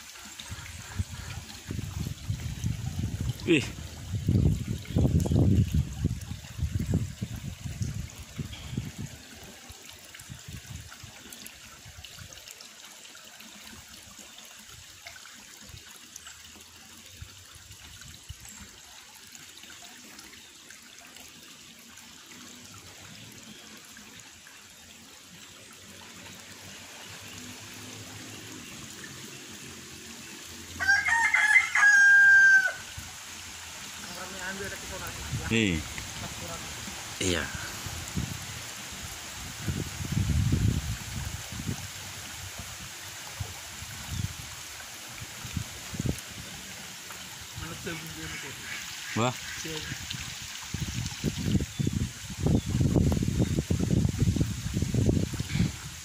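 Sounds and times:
rooster crowing: 30.8s - 32.9s.

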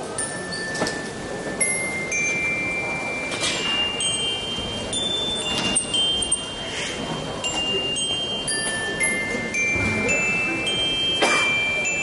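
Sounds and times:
glockenspiel ringing notes: 0.0s - 12.0s.

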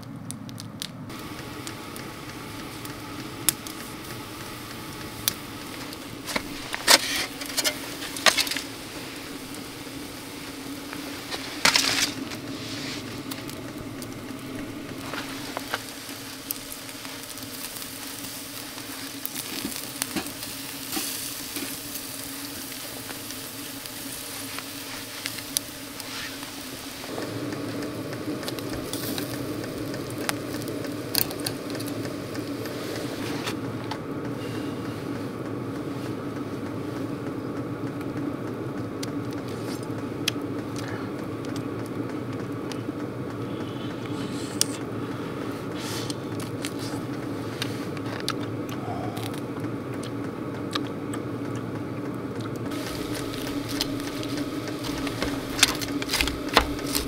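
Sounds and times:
low steady hum: 0.0s - 57.0s
food sizzling in a pan: 1.1s - 33.5s, 52.7s - 57.0s.

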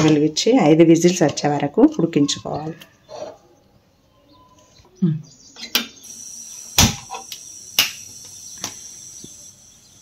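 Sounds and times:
high-pitched tone and hiss: 5.7s - 10.0s.

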